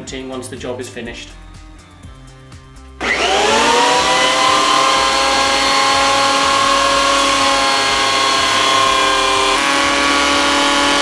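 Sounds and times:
planer motor whining: 0:03.0 - 0:11.0.

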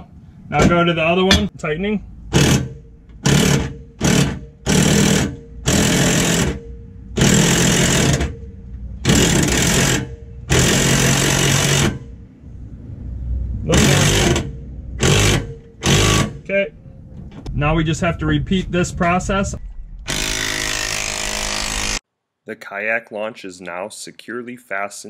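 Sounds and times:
impact driver tightening bolt: 0:02.4 - 0:06.6, 0:14.0 - 0:16.3.

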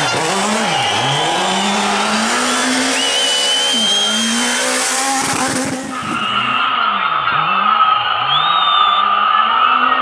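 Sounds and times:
high whine: 0:00.0 - 0:06.7
rally car engine revving: 0:00.0 - 0:10.0.

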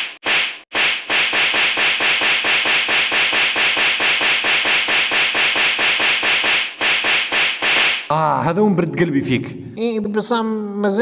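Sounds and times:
rapid hand slaps: 0:00.0 - 0:08.1.

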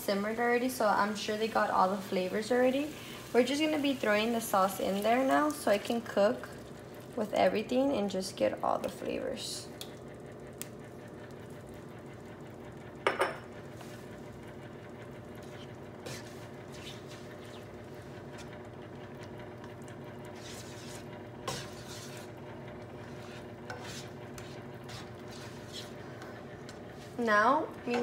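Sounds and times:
steady hum: 0:00.0 - 0:28.0
spatula scraping a pan: 0:15.4 - 0:18.7, 0:20.2 - 0:28.0.

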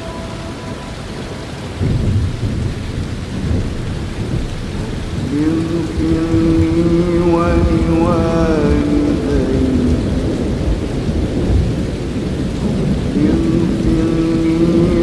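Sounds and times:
heavy rain: 0:00.0 - 0:15.0
rolling thunder: 0:00.0 - 0:15.0
man chanting recitation: 0:05.1 - 0:11.0, 0:12.9 - 0:15.0.

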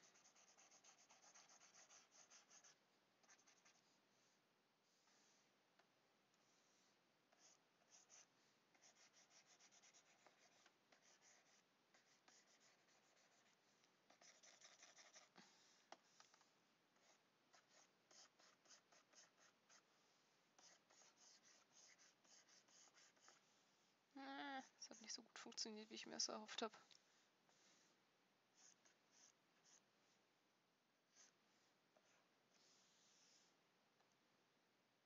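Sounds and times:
pen stylus scratching on tablet: 0:00.0 - 0:05.4, 0:06.4 - 0:19.9, 0:20.6 - 0:23.5, 0:24.5 - 0:26.8, 0:28.6 - 0:29.9, 0:31.1 - 0:33.6.

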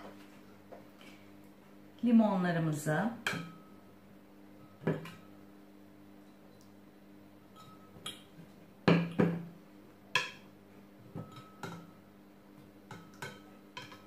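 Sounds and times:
glass carafe clinking: 0:11.2 - 0:11.9.

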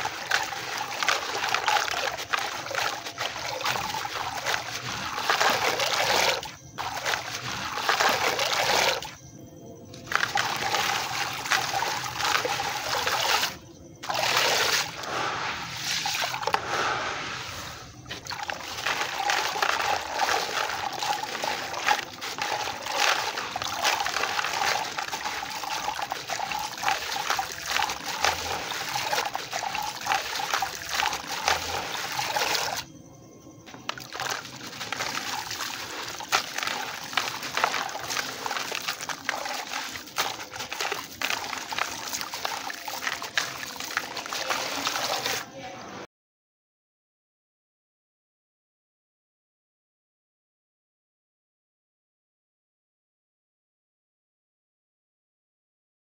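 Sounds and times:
water trickling and splashing: 0:00.0 - 0:09.2, 0:10.0 - 0:32.9, 0:33.7 - 0:45.6.

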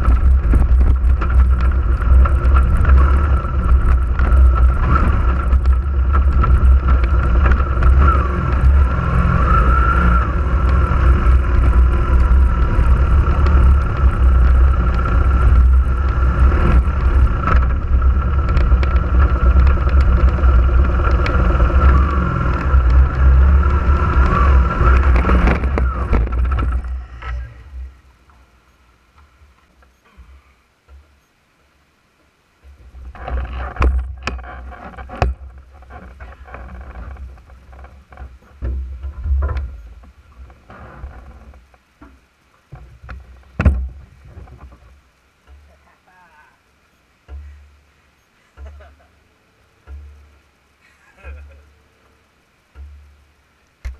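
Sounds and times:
wavering whine: 0:00.0 - 0:30.1
off-road vehicle rumbling: 0:00.0 - 0:53.9
sharp knocks: 0:49.8 - 0:50.3, 0:52.7 - 0:53.0.

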